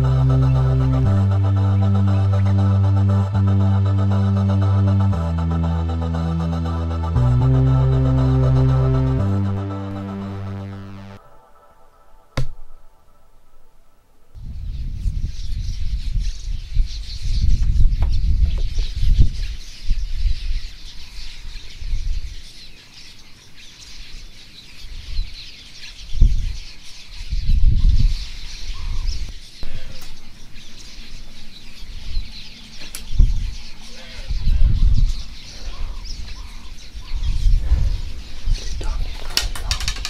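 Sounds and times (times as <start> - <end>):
high-pitched chirping: 0.0 - 13.2
wind buffeting microphone: 14.4 - 20.8, 26.1 - 26.6, 27.3 - 29.3, 33.0 - 40.0.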